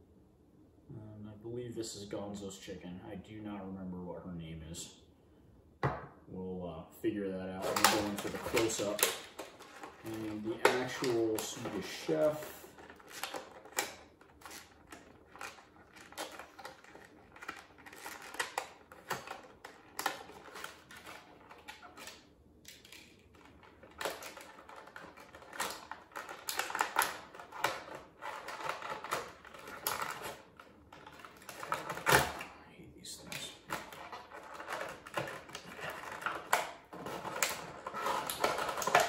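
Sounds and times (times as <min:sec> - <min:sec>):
plastic packaging crinkling: 0:07.4 - 0:32.5, 0:33.2 - 0:39.0.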